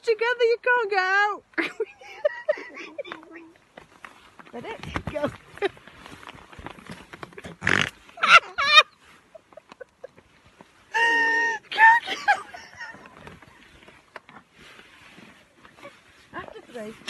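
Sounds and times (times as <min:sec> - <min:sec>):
women shrieking and laughing: 0:01.6 - 0:03.2, 0:08.2 - 0:10.2, 0:10.9 - 0:13.4
fabric rustling: 0:12.1 - 0:17.0.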